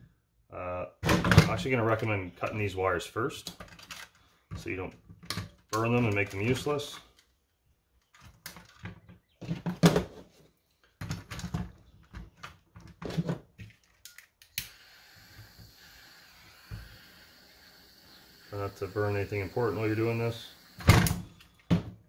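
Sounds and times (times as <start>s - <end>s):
torch igniter click: 14.5s - 17.6s
soldering torch hissing: 14.6s - 21.4s.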